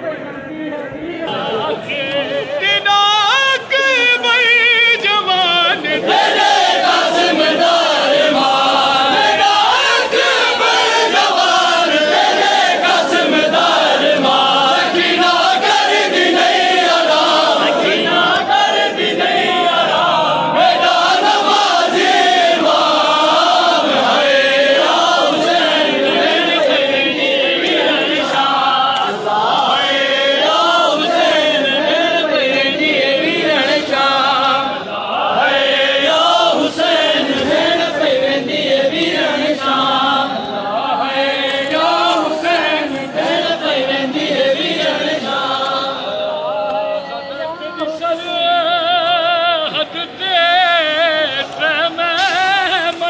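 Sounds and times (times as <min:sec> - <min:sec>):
men chanting a lament: 0:00.0 - 0:53.0.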